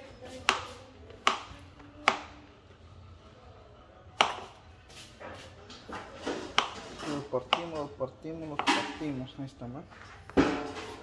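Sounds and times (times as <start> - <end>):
knife chopping on plastic board: 0.4 - 2.3, 4.2 - 4.5, 6.5 - 7.8.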